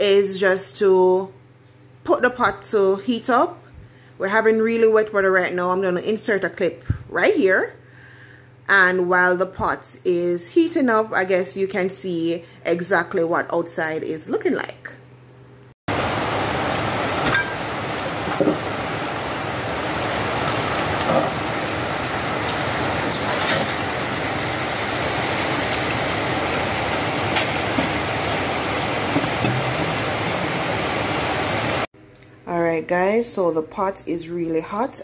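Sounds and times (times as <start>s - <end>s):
heavy rain falling: 15.9s - 31.9s.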